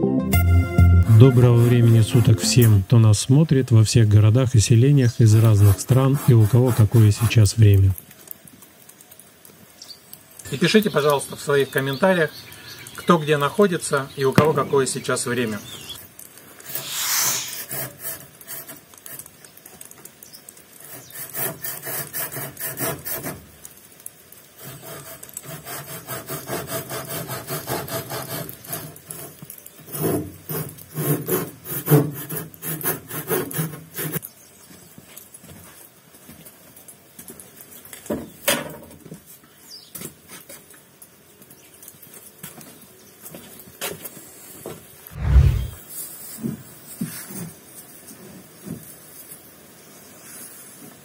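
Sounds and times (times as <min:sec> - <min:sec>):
rapid rubbing strokes: 0:01.0 - 0:02.8, 0:05.3 - 0:07.3, 0:16.6 - 0:18.6, 0:45.1 - 0:45.8.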